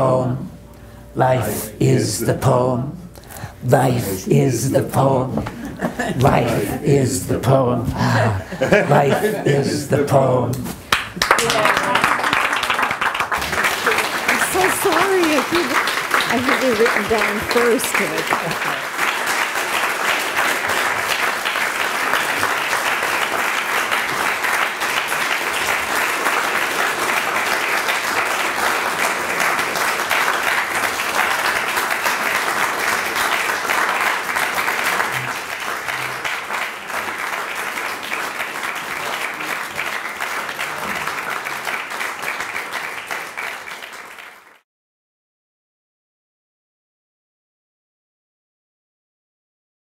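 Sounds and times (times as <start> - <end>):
people applauding: 5.4 - 6.8, 10.9 - 44.6.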